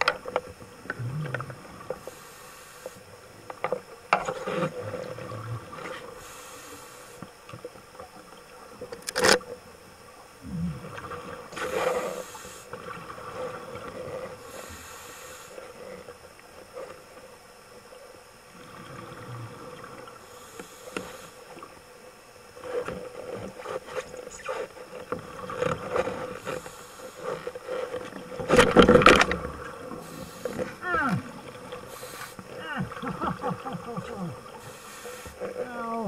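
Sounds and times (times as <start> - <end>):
crackling bubbles: 0.0 - 36.0
steady underwater hum: 0.0 - 36.0
scuba regulator breathing: 6.1 - 7.2, 11.6 - 12.7, 14.4 - 16.0, 26.3 - 28.0, 30.0 - 30.8, 31.8 - 32.6, 34.5 - 35.6.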